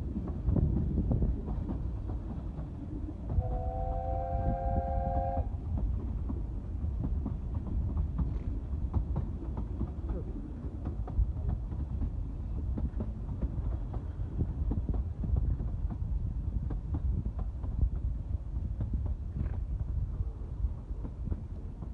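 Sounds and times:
wheels clicking on rails: 0:00.0 - 0:03.6, 0:05.0 - 0:21.9
train rumbling along track: 0:00.0 - 0:21.9
train whistle blast: 0:03.4 - 0:05.5.

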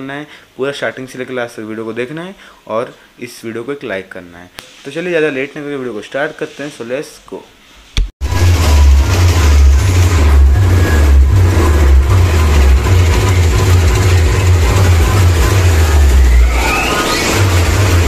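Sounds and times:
rising whistle: 0:08.3 - 0:18.0.

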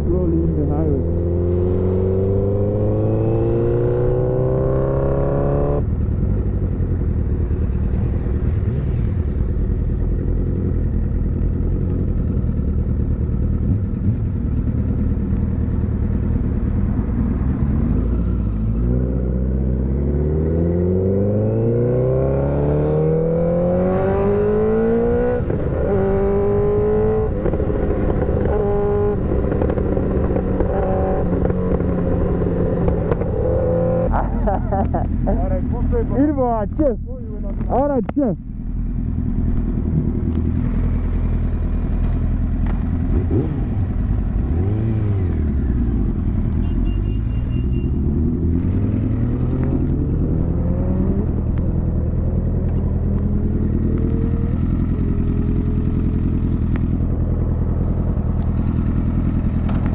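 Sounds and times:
motorcycle engine accelerating: 0:00.0 - 0:59.9.

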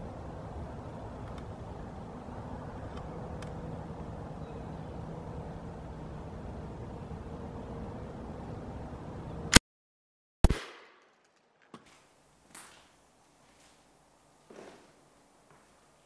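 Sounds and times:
outdoor background hum: 0:00.0 - 0:09.6
air rifle shot: 0:10.4 - 0:11.2.

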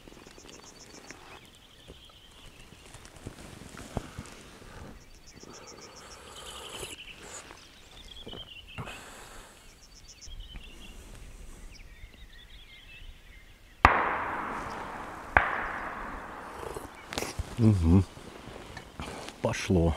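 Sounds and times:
songbirds singing: 0:00.0 - 0:19.9
shotgun shot echoing: 0:13.9 - 0:17.4.

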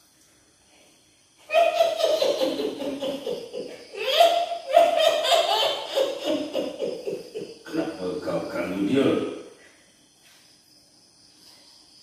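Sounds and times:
woman's high-pitched cackling laugh: 0:01.5 - 0:07.6.

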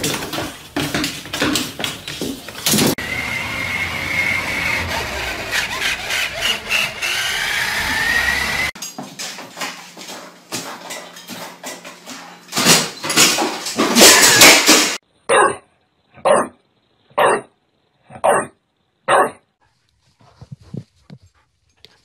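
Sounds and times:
toy truck motor whine: 0:03.0 - 0:08.8.

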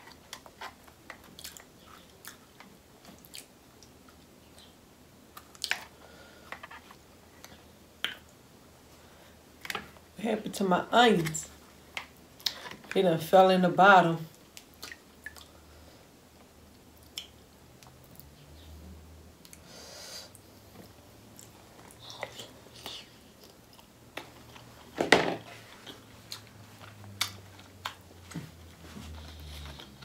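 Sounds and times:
wet chewing sounds: 0:01.1 - 0:04.2, 0:25.7 - 0:30.0.

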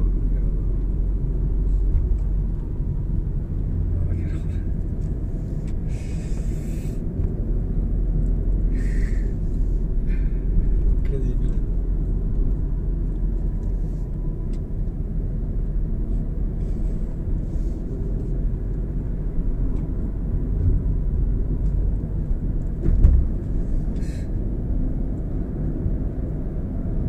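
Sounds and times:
car cabin road noise: 0:00.0 - 0:27.0
brief thump: 0:22.8 - 0:23.4.

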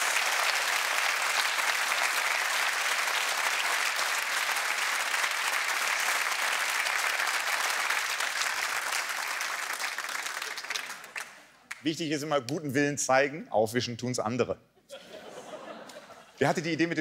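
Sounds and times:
studio audience applauding: 0:00.0 - 0:11.9.

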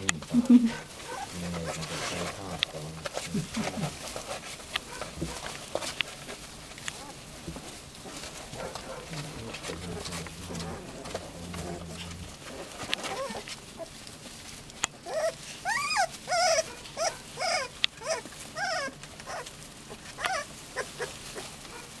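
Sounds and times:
puppies whining: 0:00.1 - 0:04.1, 0:06.9 - 0:07.4, 0:08.5 - 0:14.0, 0:14.9 - 0:22.0.

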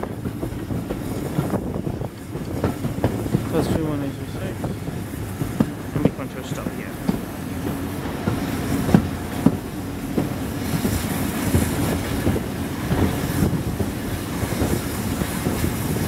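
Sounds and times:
train rumbling on track: 0:00.0 - 0:16.0
wheels clicking over rail joints: 0:00.0 - 0:16.0.

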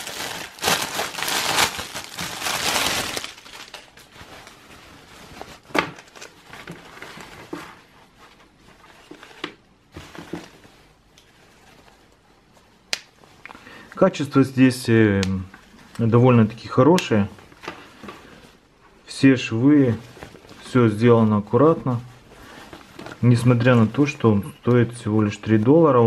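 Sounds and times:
plastic bag crinkling: 0:00.0 - 0:07.6
raincoat fabric rustling: 0:00.0 - 0:13.4, 0:19.8 - 0:24.0.

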